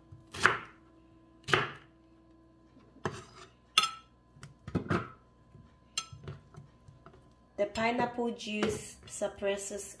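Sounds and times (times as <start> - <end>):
knife chopping fruit: 0.0 - 0.8, 1.4 - 1.9.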